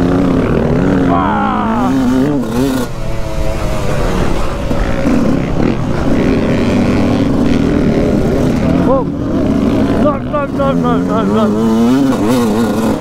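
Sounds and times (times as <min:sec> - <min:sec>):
motocross bike engine revving: 0:00.0 - 0:13.0.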